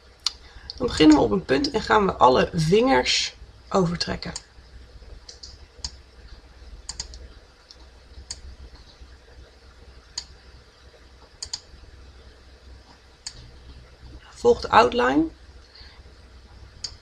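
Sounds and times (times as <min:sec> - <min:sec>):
faint low hum: 0:00.0 - 0:17.0
computer mouse clicking: 0:05.2 - 0:06.0, 0:06.9 - 0:09.0, 0:10.1 - 0:10.4, 0:11.2 - 0:11.7, 0:16.8 - 0:17.0.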